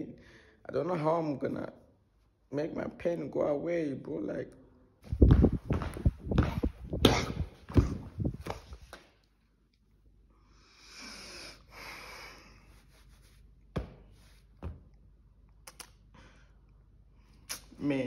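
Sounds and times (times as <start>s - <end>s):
long breaths: 10.3s - 12.8s
phone rubbing against fabric: 12.7s - 13.6s.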